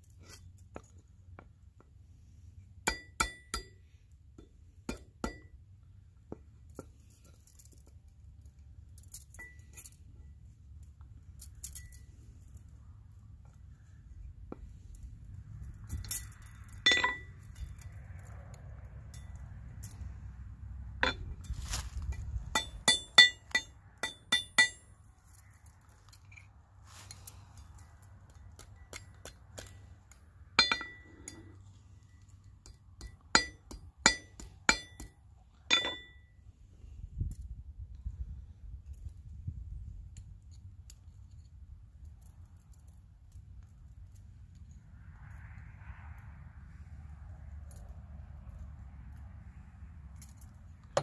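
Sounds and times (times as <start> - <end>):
hammer tapping on metal: 32.7 - 36.2.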